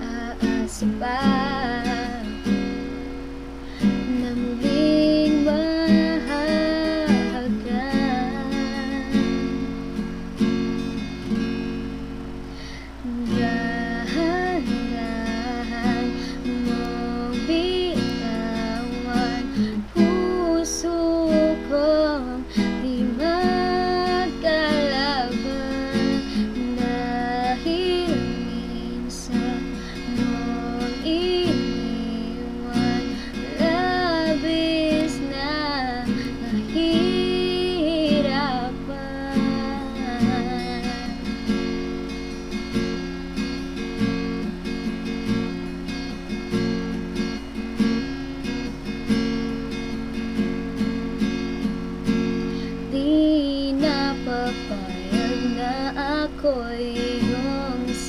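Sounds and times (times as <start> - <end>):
woman singing a ballad: 0.0 - 9.8, 12.6 - 41.9, 52.0 - 58.0
acoustic guitar strumming chords: 0.0 - 58.0.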